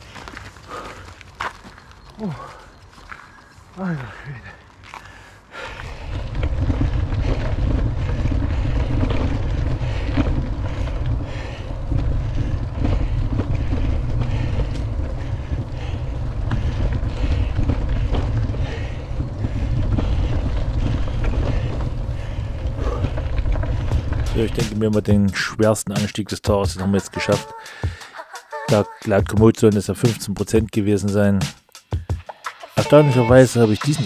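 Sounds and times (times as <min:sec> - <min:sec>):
wind buffeting microphone: 0:05.6 - 0:25.3.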